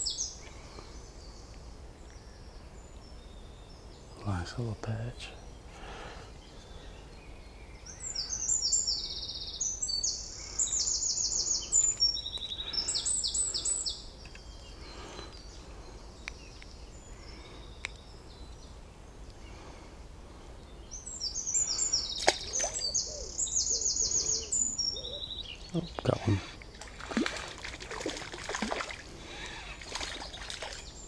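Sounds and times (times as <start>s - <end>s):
small ticks: 17.8s - 18.1s
songbird trilling: 20.9s - 31.0s.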